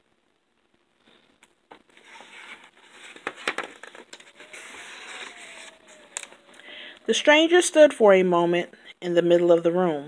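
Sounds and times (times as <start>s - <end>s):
book page turning: 1.7s - 6.6s.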